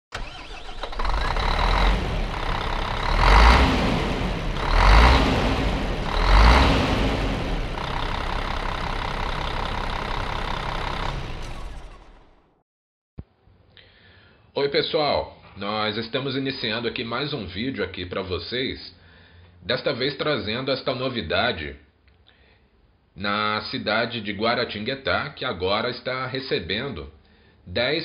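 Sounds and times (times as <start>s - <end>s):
diesel bus engine revving: 0.1s - 12.5s.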